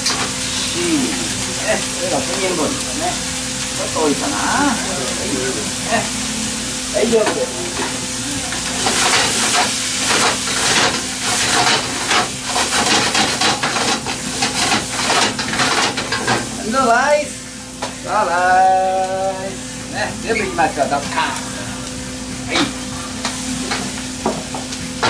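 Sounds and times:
rice sizzling in a frying pan: 0.0 - 25.0
person calling out: 0.6 - 2.2, 3.8 - 6.2, 18.0 - 20.1.

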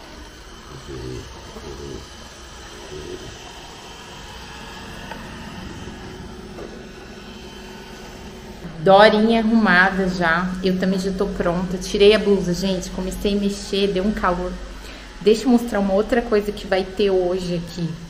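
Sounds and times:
robot vacuum cleaner whirring: 0.0 - 18.0.

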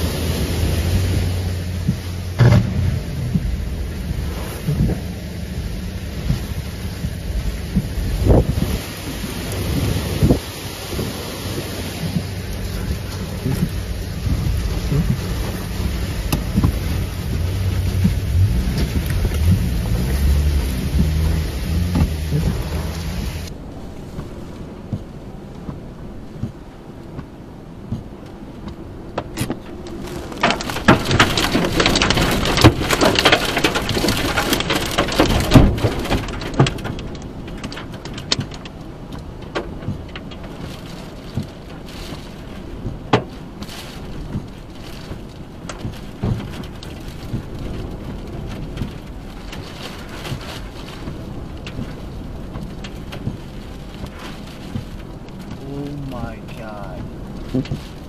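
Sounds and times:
heavy rain on a car: 0.0 - 58.0
wind buffeting a car: 0.0 - 58.0
debris tapping on car body: 1.9 - 3.6, 29.2 - 38.8.

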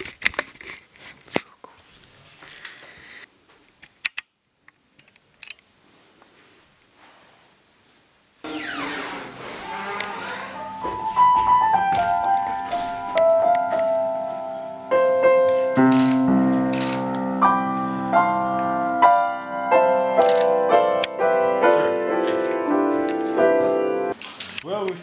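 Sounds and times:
piano melody and chords: 9.6 - 24.2.

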